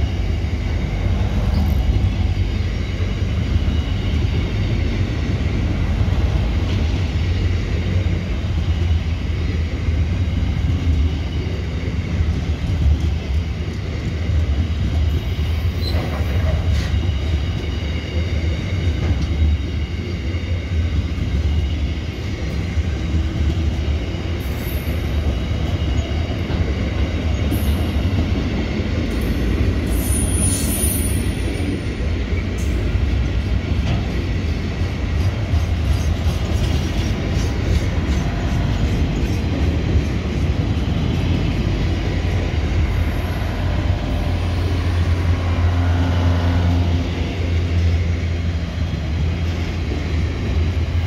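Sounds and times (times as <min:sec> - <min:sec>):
train wheels rumbling on rails: 0:00.0 - 0:51.0
faint high wheel squeal: 0:15.1 - 0:18.3, 0:29.2 - 0:32.5.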